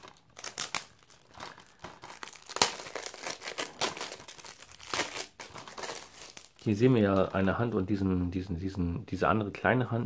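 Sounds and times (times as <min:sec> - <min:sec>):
plastic wrap snap: 0:00.0 - 0:07.4
shrink wrap crinkling: 0:00.0 - 0:07.8.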